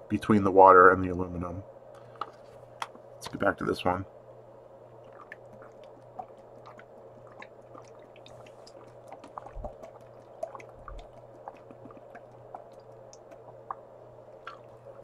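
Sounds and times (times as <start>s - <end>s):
faint steady hum: 0.0s - 15.0s
deep gulps: 5.0s - 15.0s
wet mouth clicks: 5.1s - 13.8s, 14.4s - 14.8s
person swallowing water: 5.1s - 15.0s.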